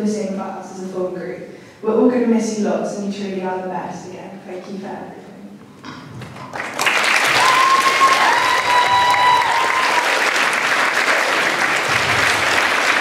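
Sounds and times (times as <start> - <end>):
audience applauding: 6.2 - 13.0.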